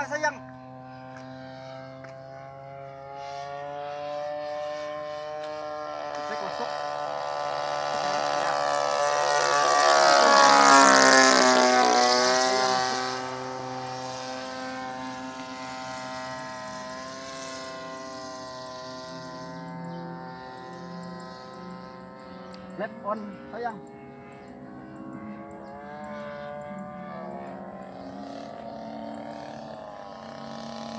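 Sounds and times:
model plane engine passing: 0.0 - 30.9.

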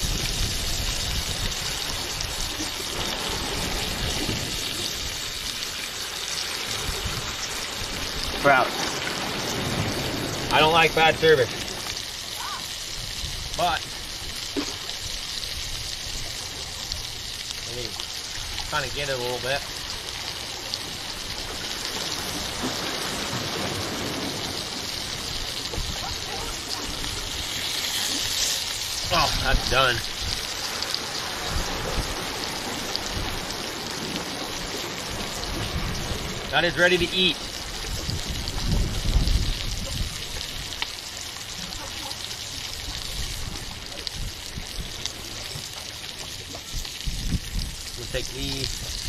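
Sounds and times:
fish sizzling in a pan: 0.0 - 49.0
waves breaking against rocks: 0.0 - 49.0.

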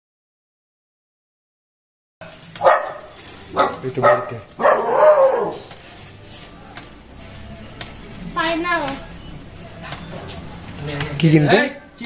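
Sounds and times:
dog barking: 2.6 - 5.6.

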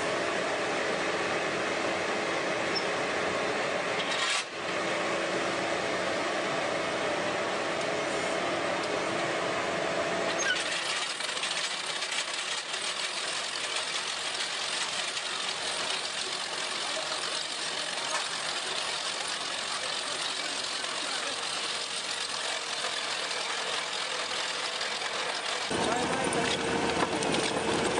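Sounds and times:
trencher engine and chain: 10.3 - 27.9.

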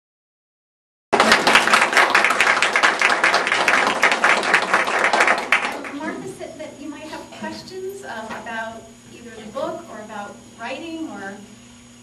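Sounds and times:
audience applauding: 1.1 - 6.2.

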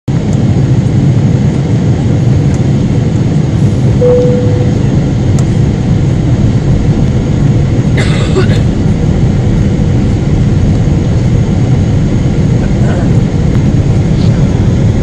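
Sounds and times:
jet engine roar in cabin: 0.1 - 15.0
short steady tone: 4.0 - 5.1.

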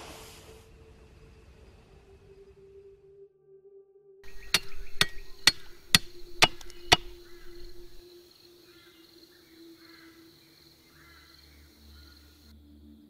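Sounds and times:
blade chopping on wooden block: 4.2 - 8.0.

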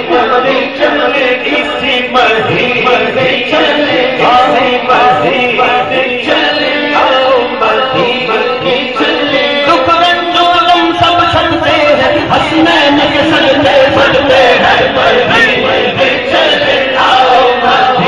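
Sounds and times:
man singing through a microphone: 0.0 - 18.0.

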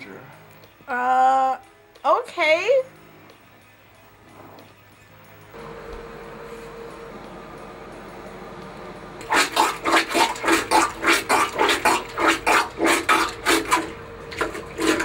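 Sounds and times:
plunger sloshing water in toilet: 9.2 - 15.0.

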